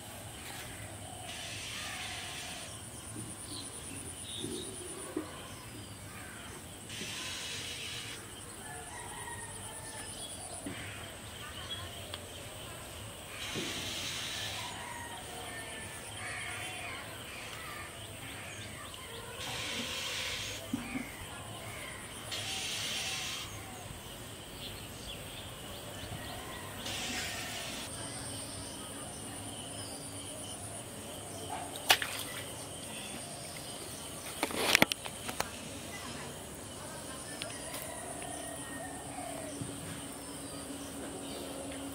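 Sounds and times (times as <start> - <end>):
insects trilling: 0.3 - 4.9, 5.8 - 11.9, 12.8 - 41.9
insect buzzing bursts: 6.9 - 8.2, 13.3 - 14.8, 19.4 - 20.6, 22.3 - 23.6, 26.8 - 28.0.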